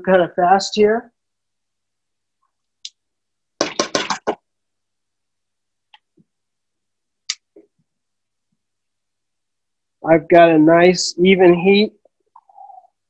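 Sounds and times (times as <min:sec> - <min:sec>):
faint clicks and taps: 0:05.8 - 0:06.4.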